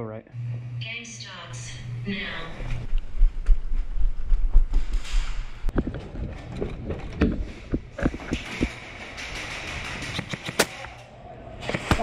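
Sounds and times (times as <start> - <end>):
low rumble: 1.4 - 10.2
gear knocking and thumping: 5.7 - 11.0.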